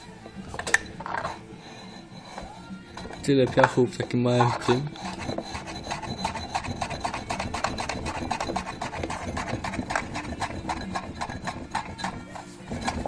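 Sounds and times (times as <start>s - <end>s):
gritty scraping in drum brake: 1.1s - 13.0s.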